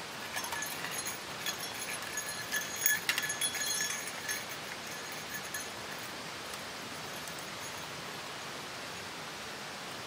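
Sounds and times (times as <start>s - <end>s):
metal gear jingling: 0.0s - 6.2s, 7.0s - 7.9s
steady outdoor hiss: 0.0s - 10.0s.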